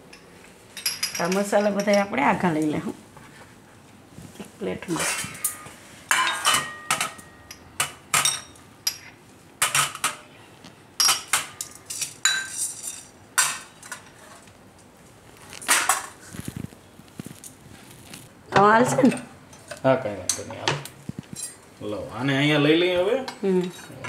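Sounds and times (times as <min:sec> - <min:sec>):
bowls clinking on metal plate: 0:05.0 - 0:10.3, 0:11.0 - 0:14.2.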